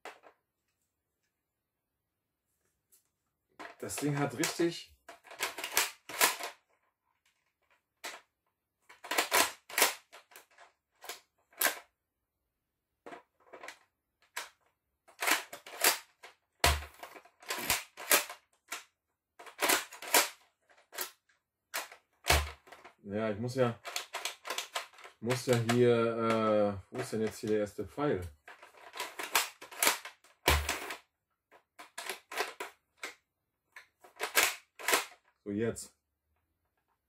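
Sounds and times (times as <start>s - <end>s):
toy blaster plastic clacks: 3.6s - 6.6s, 8.9s - 11.9s, 13.1s - 21.2s, 21.8s - 23.0s, 23.8s - 26.4s, 28.4s - 31.0s, 31.8s - 33.2s, 34.0s - 35.3s.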